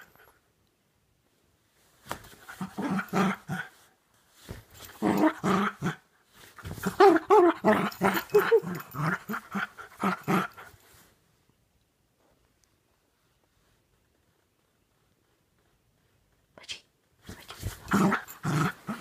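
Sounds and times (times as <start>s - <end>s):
puppy play-growling: 2.3s - 3.8s, 4.8s - 6.0s, 6.6s - 10.9s, 17.3s - 19.0s.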